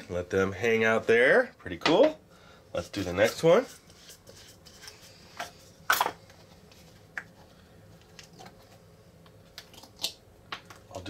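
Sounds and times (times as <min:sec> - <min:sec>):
rustling scrape: 0:02.8 - 0:05.8.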